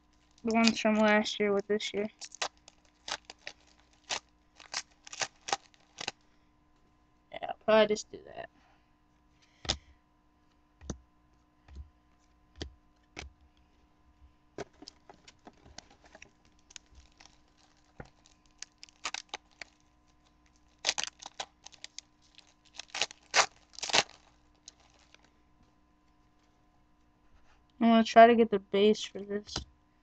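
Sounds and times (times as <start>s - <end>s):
wrapper tearing and crinkling: 0.1s - 1.2s, 2.0s - 6.2s, 15.2s - 25.3s.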